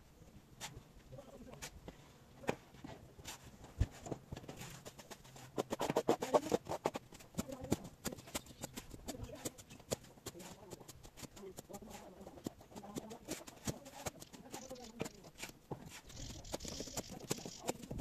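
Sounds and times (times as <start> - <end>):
hand working mortar in metal wheelbarrow: 4.0 - 18.0.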